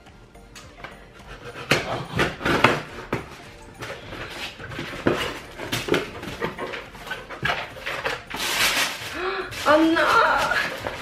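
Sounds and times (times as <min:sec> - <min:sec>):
cardboard box tape ripping: 0:04.0 - 0:11.0.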